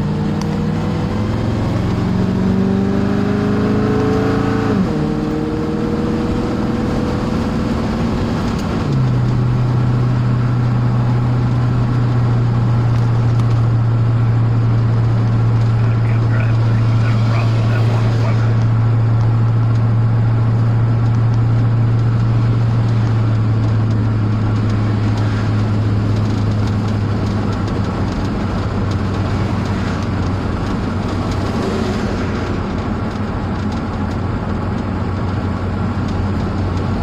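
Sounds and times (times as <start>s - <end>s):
vehicle engine hum: 0.0s - 37.0s
rushing noise: 14.2s - 20.6s.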